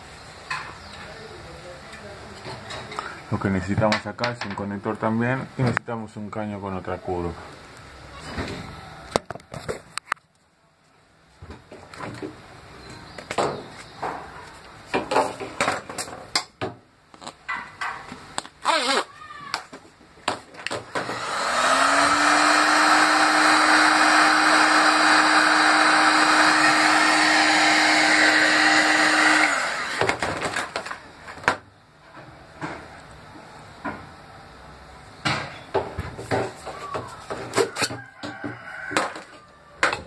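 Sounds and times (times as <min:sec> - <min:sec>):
heat gun fan humming: 0:20.9 - 0:31.1.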